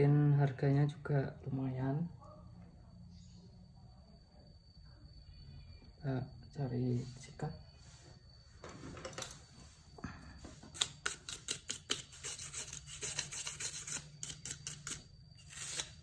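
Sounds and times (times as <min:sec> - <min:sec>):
brush scrubbing circuit board: 0:10.8 - 0:15.9.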